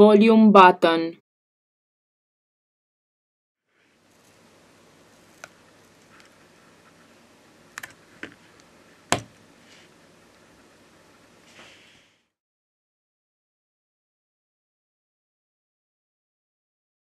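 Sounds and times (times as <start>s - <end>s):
faint hiss: 8.3s - 12.4s.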